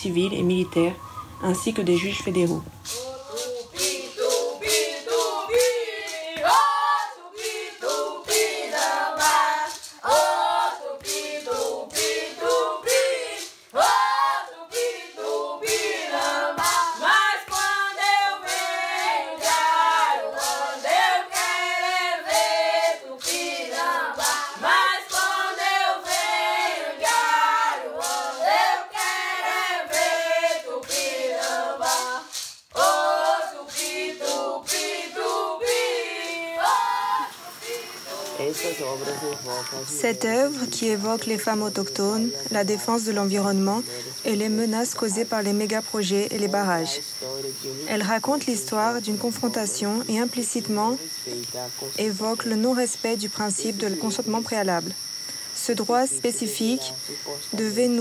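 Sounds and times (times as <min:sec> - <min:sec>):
group singing a chant: 0:02.8 - 0:47.7.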